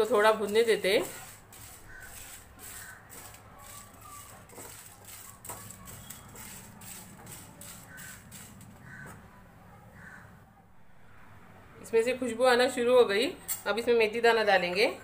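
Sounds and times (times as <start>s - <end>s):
seeds scraping in a pan: 0.0s - 8.8s.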